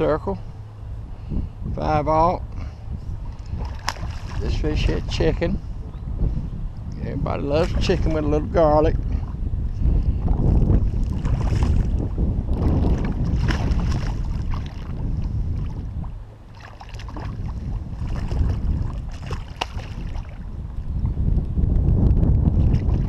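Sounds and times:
wind buffeting microphone: 0:00.0 - 0:23.0
fish splashing at water surface: 0:03.4 - 0:04.5, 0:12.9 - 0:14.9, 0:16.5 - 0:20.4.

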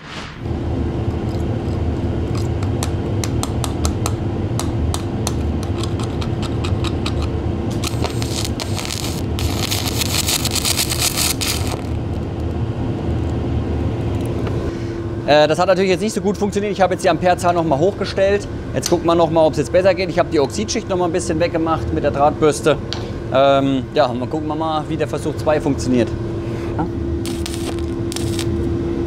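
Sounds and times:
steady hum: 0:00.0 - 0:29.0
welding arc crackling: 0:05.6 - 0:12.6, 0:27.2 - 0:28.6.

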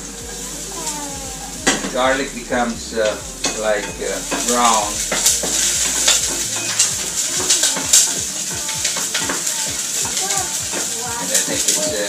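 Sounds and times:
garlic sizzling in hot oil: 0:00.0 - 0:12.0.

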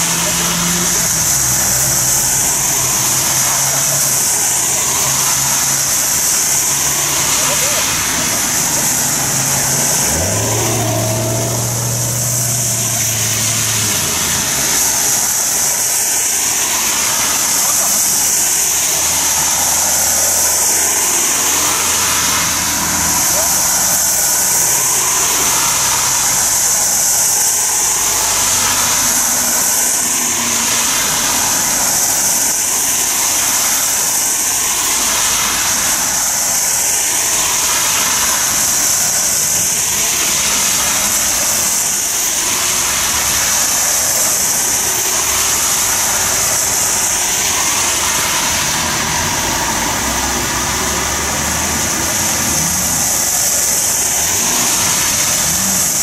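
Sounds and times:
rain hiss: 0:00.0 - 0:56.0
tyres hissing on wet road: 0:00.0 - 0:56.0
vehicles driving past: 0:00.0 - 0:56.0.

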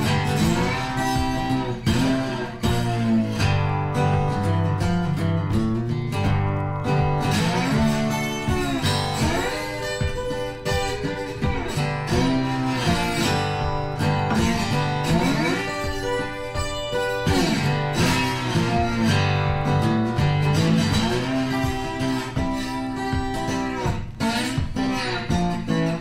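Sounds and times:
guitar with bending notes: 0:00.0 - 0:26.0.

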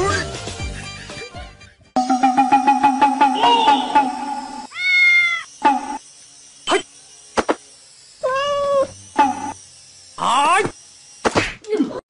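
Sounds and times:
background music: 0:00.0 - 0:04.7
baby monkey crying: 0:03.0 - 0:06.0, 0:08.2 - 0:09.5.

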